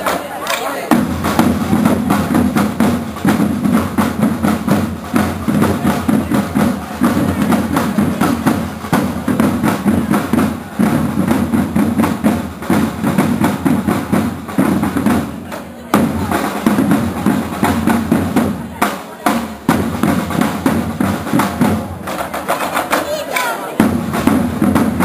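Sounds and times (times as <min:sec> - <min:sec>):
marching drums: 0:00.0 - 0:25.0.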